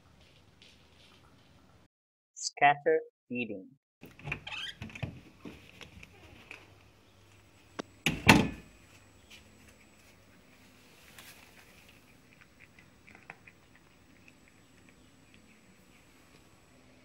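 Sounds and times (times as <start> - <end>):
cat crunching food: 11.0 - 17.0.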